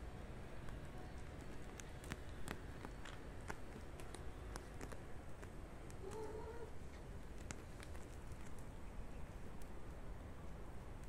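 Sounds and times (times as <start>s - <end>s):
claws ticking on cloth: 0.6s - 6.3s.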